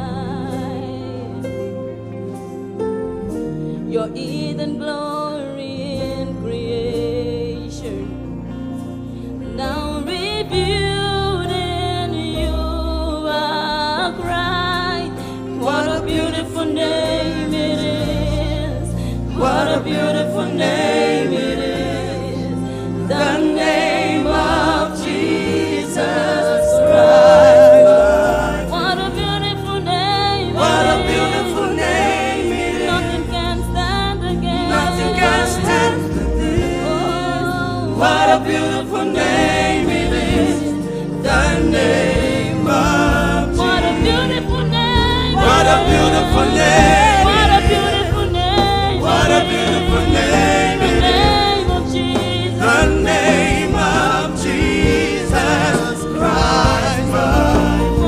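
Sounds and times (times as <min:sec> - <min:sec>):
keyboard: 0:00.0 - 0:58.0
bass guitar: 0:05.6 - 0:58.0
woman singing lead: 0:09.5 - 0:21.3, 0:24.9 - 0:31.9, 0:43.2 - 0:53.0
backing voices singing: 0:15.2 - 0:58.0.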